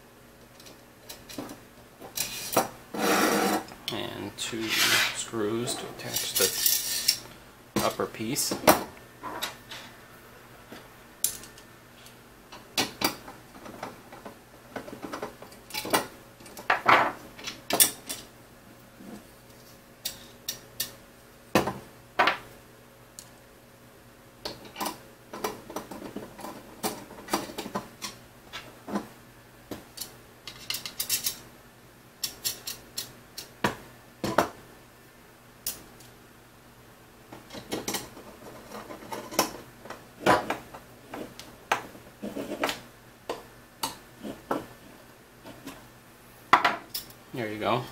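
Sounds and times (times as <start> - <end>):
small screws clinking on metal: 6.1 - 7.2.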